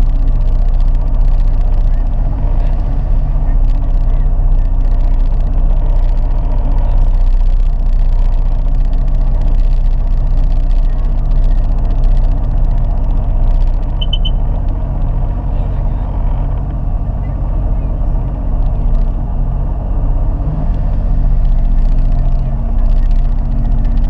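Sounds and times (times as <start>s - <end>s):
short high beeps: 14.0s - 14.5s.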